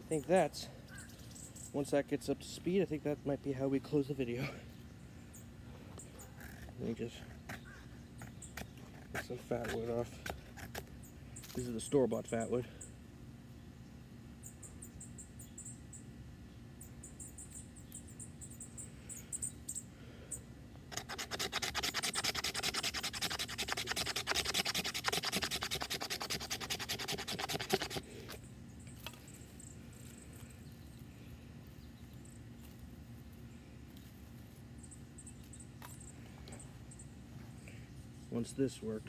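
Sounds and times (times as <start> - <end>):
knife scraping wood: 6.4 - 10.9, 20.9 - 28.4.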